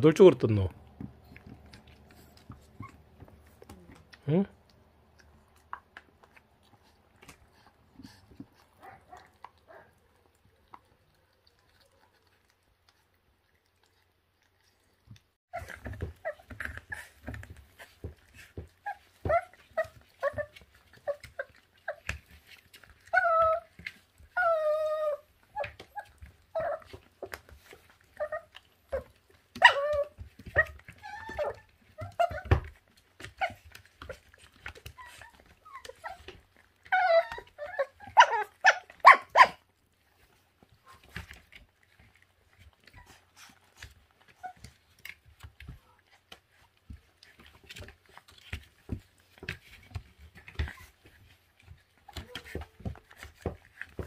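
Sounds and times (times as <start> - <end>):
puppies yelping and whining: 0.8 - 4.1, 14.5 - 54.0.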